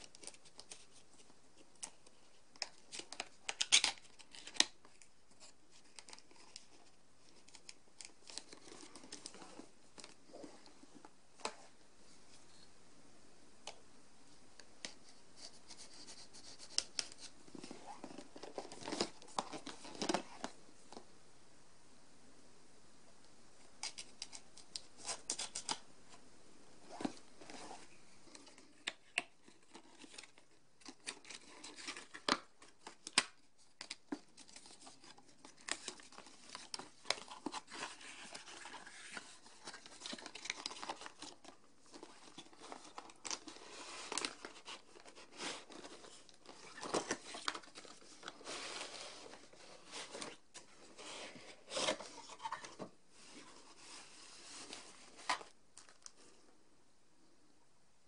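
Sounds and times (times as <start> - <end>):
cardboard rustling and tearing: 34.1 - 55.5.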